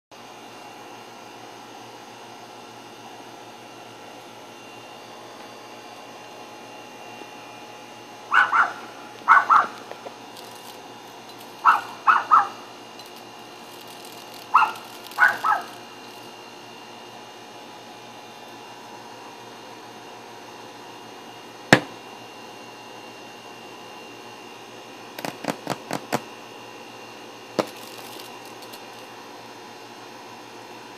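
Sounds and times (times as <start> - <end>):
dog barking: 8.3 - 9.8, 11.6 - 12.6, 14.5 - 15.8.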